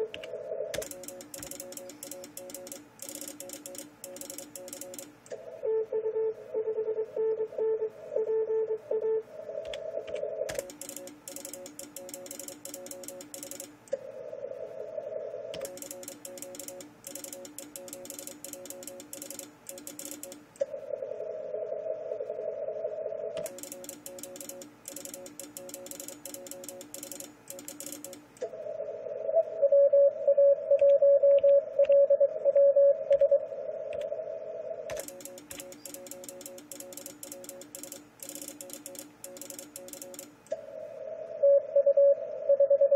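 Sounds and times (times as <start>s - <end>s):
keyed morse sending tone: 0.0s - 13.8s, 15.6s - 20.4s, 23.4s - 28.3s, 34.9s - 40.4s.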